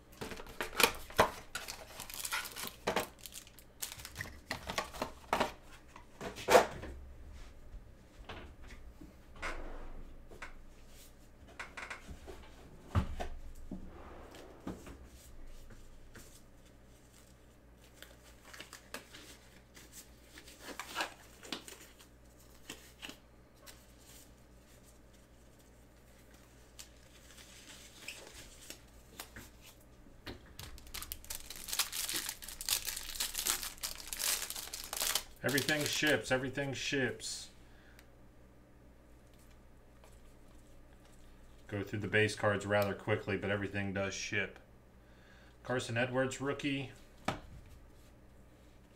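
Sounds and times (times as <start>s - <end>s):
plastic wrapper crinkling and tearing: 0.4s - 5.2s, 30.6s - 36.3s.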